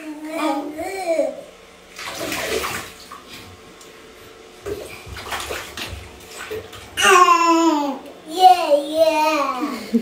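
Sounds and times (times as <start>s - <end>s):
bathwater splashing: 1.8s - 3.9s, 4.6s - 7.4s.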